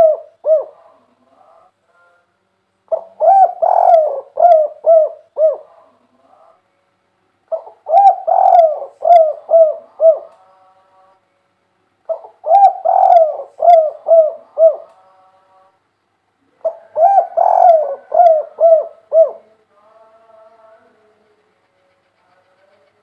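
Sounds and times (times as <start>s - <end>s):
dove cooing: 0.0s - 1.1s, 2.9s - 6.0s, 7.5s - 10.4s, 12.1s - 14.9s, 16.5s - 19.6s.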